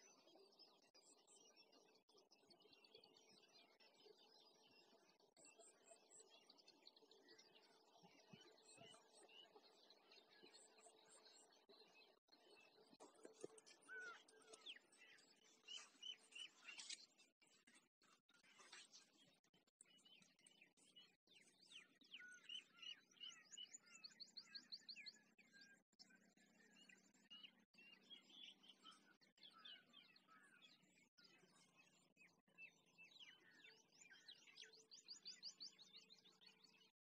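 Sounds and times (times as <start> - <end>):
birds chirping and whistling: 13.3 - 17.0.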